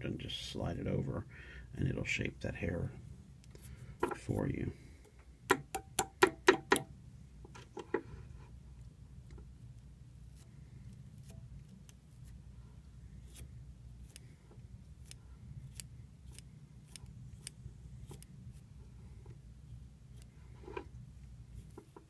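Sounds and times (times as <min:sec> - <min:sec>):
low steady hum: 0:00.0 - 0:22.0
scissors snipping: 0:13.2 - 0:14.3, 0:15.0 - 0:18.3.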